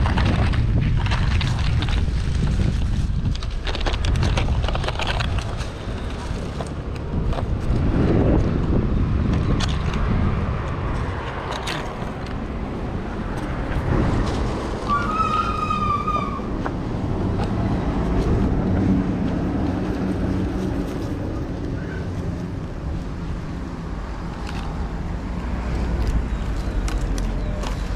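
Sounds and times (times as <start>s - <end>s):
road traffic passing: 0.0s - 27.9s.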